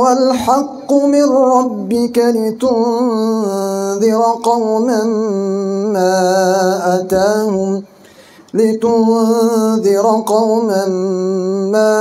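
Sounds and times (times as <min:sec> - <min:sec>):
man chanting recitation: 0:00.0 - 0:12.0.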